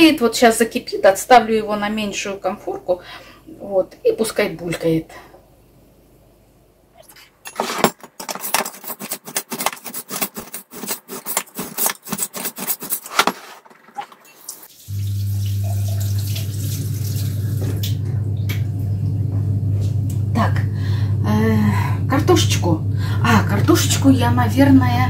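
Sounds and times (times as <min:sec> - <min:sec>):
dishes and cutlery clattering: 0:07.5 - 0:14.4
kitchen tap running: 0:13.6 - 0:18.8
low steady hum: 0:14.9 - 0:25.0.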